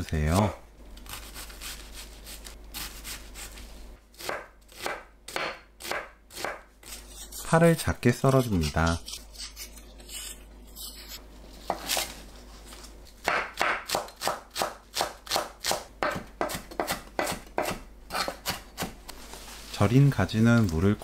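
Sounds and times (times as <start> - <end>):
knife chopping on wooden board: 4.2 - 6.7, 13.2 - 19.0.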